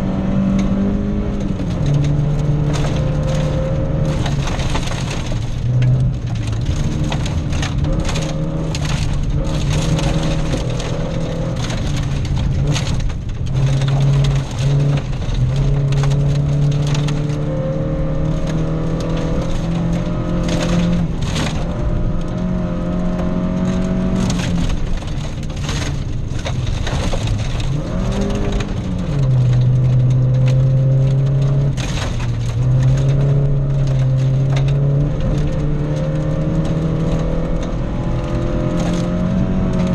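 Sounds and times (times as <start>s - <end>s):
gravel rattling against underbody: 0.0s - 39.9s
rally car engine under load: 0.0s - 39.9s.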